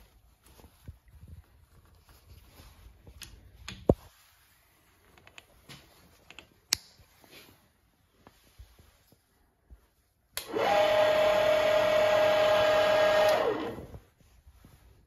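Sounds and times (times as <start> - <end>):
milling machine motor whining: 10.4 - 13.9.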